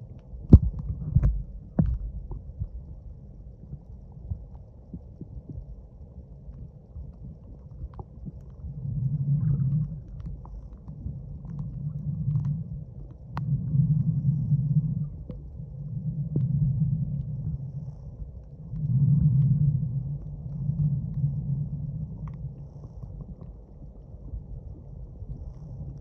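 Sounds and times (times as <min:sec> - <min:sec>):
low muffled underwater rumble: 0:00.0 - 0:26.0
faint clicks: 0:06.4 - 0:14.2, 0:15.0 - 0:24.1.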